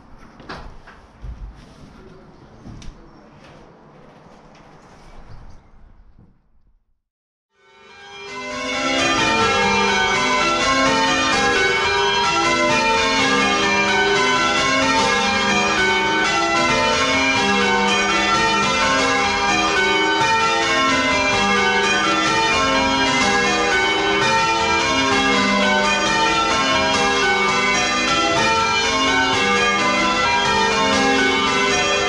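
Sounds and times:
church bells ringing: 7.6s - 32.0s.

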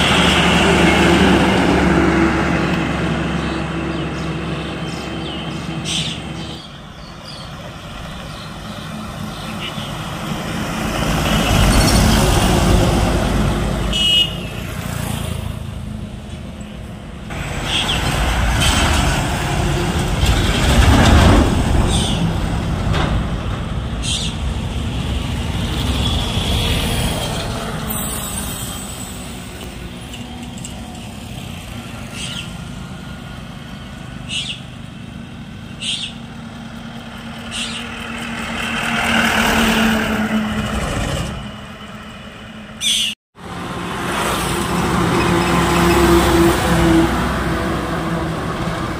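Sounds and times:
trucks driving past: 0.0s - 48.9s.

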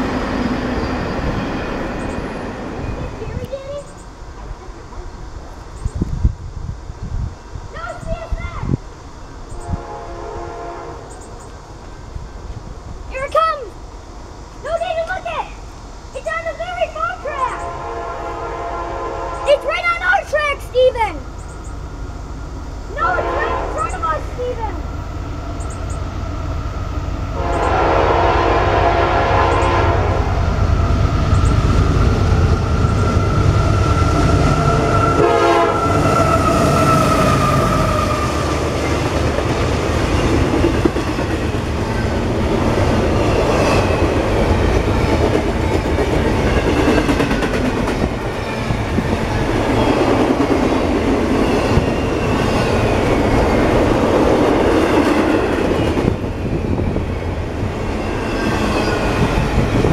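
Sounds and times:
freight train rumbling: 0.0s - 59.9s
train horn: 9.6s - 11.2s, 17.5s - 19.5s, 23.0s - 24.1s, 27.3s - 30.6s, 33.2s - 38.7s
wheels clacking over rail joints: 38.5s - 56.4s.

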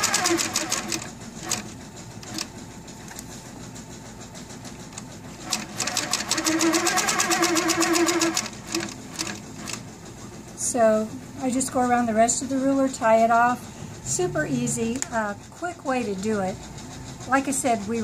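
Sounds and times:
quilting machine stitching: 0.0s - 3.4s, 4.4s - 10.0s.

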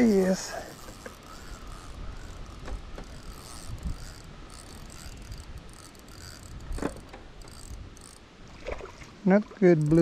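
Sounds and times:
fishing reel gear whirring: 0.0s - 8.6s, 9.6s - 10.0s.

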